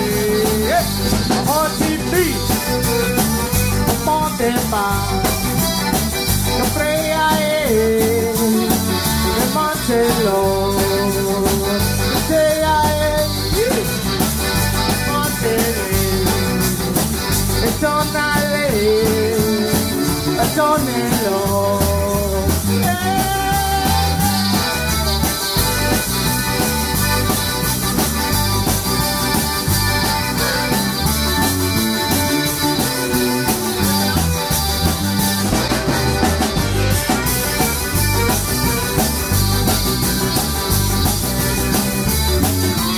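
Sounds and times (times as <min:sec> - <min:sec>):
accordion: 0:00.0 - 0:42.9
drum kit: 0:00.0 - 0:42.9
electric bass: 0:00.0 - 0:42.9
electric guitar: 0:00.0 - 0:42.9
live zydeco band playing: 0:00.0 - 0:42.9.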